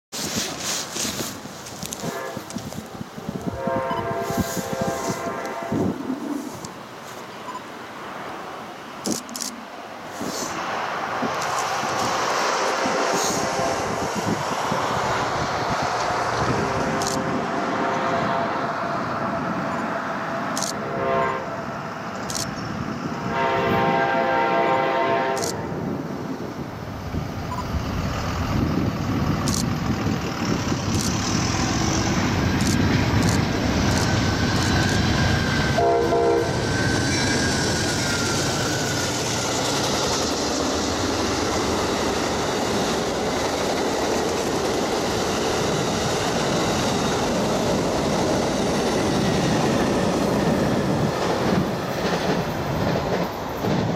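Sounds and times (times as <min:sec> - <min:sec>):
train rumble: 0:00.1 - 0:53.9
locomotive horn blasts: 0:02.0 - 0:02.4, 0:03.5 - 0:06.0, 0:12.6 - 0:14.0, 0:16.5 - 0:18.7, 0:20.8 - 0:21.5, 0:23.3 - 0:25.7, 0:35.8 - 0:36.6
passenger cars rolling past: 0:26.9 - 0:53.9.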